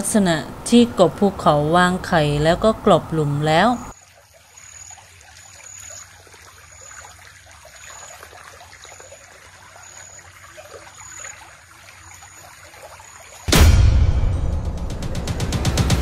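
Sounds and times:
stream trickling over pebbles: 0.8 - 13.5.

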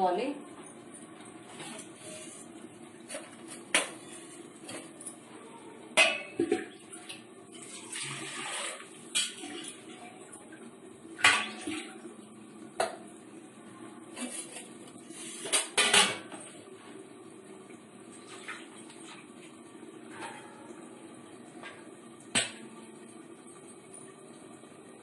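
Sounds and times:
metal utensils clanking on pot: 15.4 - 16.3.

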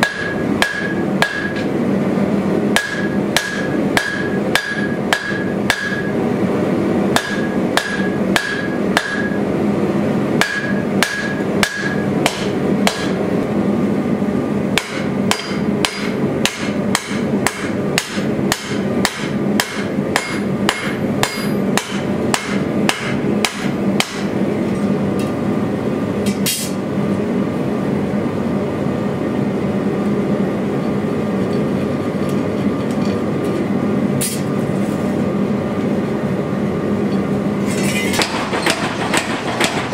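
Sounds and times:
hammer striking steel on anvil: 0.0 - 1.7, 2.7 - 6.2, 7.1 - 9.5, 10.4 - 13.2, 14.7 - 24.4, 37.1 - 39.9.

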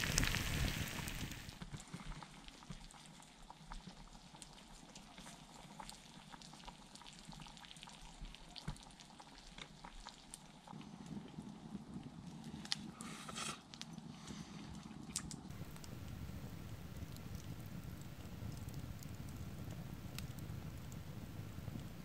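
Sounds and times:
food sizzling in a pan: 0.0 - 1.6, 15.5 - 22.0
small pops and ticks: 0.0 - 22.0
low rumble: 15.5 - 22.0.

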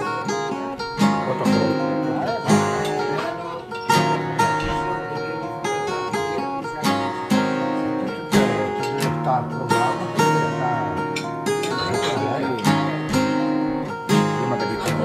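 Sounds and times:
acoustic guitar music: 0.0 - 15.0.

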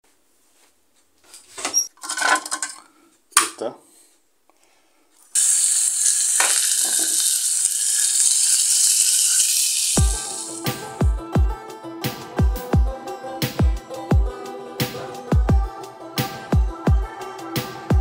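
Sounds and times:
tin can parts clinking: 2.0 - 2.8, 6.1 - 10.6
meat sizzling in oil: 5.3 - 10.7.

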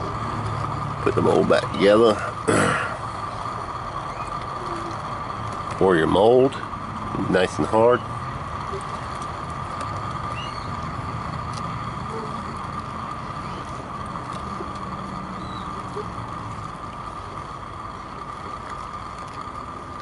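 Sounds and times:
gas burner hissing: 0.0 - 20.0.

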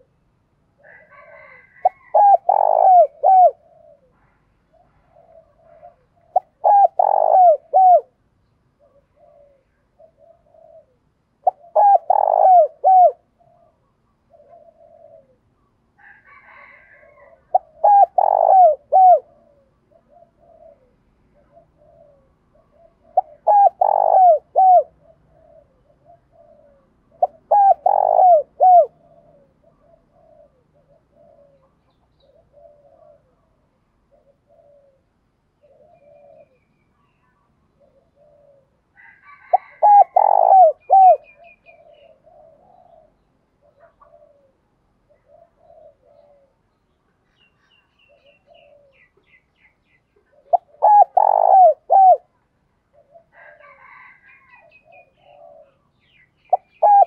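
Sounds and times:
dove cooing: 0.0 - 8.2, 8.8 - 46.9, 47.8 - 57.0.

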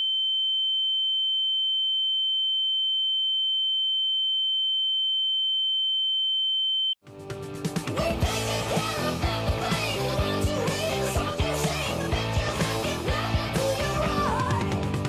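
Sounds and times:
high-pitched sine test tone: 0.0 - 7.0
music: 7.0 - 15.0.

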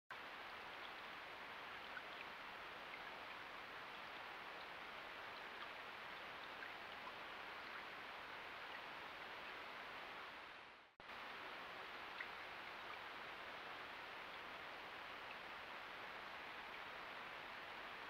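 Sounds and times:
shallow river flowing: 0.2 - 18.0.

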